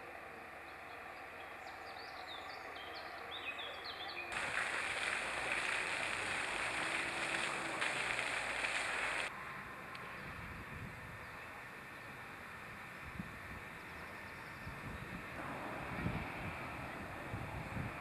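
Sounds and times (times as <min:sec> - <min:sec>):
steady rushing noise: 0:04.3 - 0:09.3, 0:15.4 - 0:18.0.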